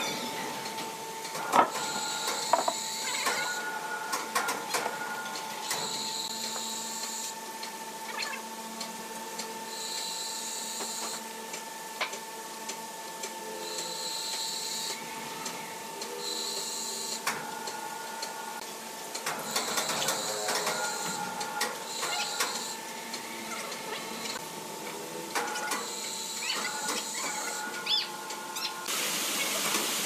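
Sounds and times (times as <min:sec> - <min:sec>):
sawmill machinery humming: 0:08.6 - 0:30.0.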